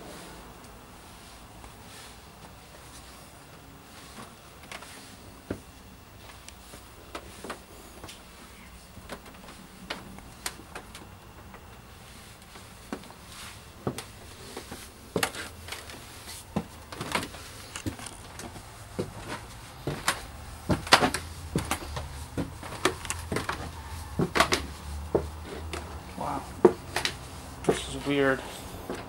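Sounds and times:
footsteps on stairs and debris: 12.4s - 29.0s.

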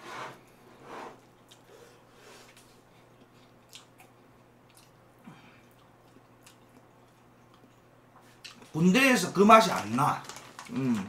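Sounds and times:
faint chewing: 1.2s - 8.8s.

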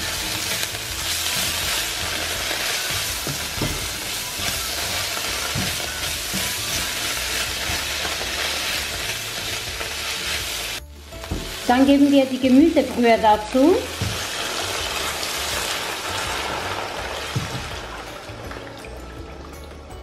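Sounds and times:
spatula stirring and scraping: 0.0s - 10.8s
vegetables sizzling in a pan: 0.0s - 18.2s.

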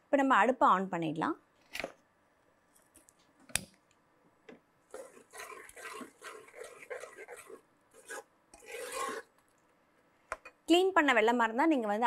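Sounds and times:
spoon scraping inside a pot: 4.9s - 9.4s.

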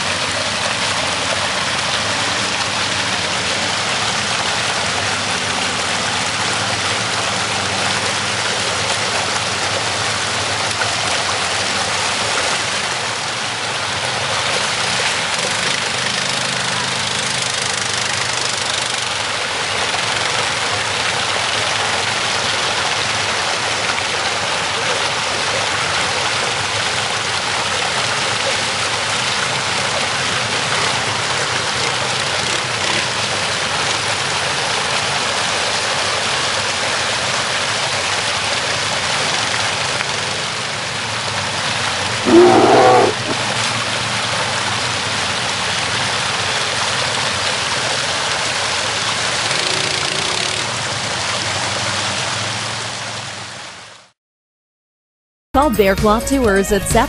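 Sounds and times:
atv engines running: 0.0s - 22.9s, 25.8s - 35.4s, 47.8s - 53.5s
water rushing over rocks: 0.0s - 54.1s
loud pitched cry: 42.3s - 43.4s.

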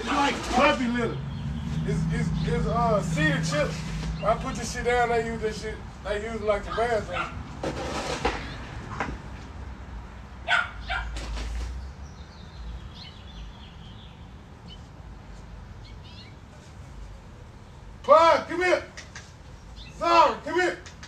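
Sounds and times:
dog barking: 6.7s - 7.4s, 10.4s - 11.2s
higher short calls: 18.0s - 21.0s.

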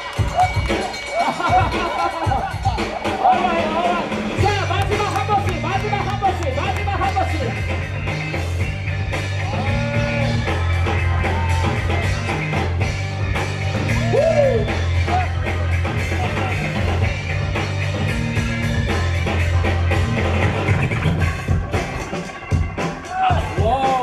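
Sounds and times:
dance music with heavy bass: 0.0s - 24.0s.

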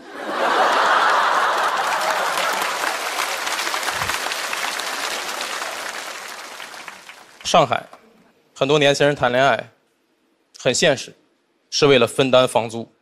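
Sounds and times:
audience laughter: 0.0s - 6.3s
audience applauding: 0.0s - 7.5s.

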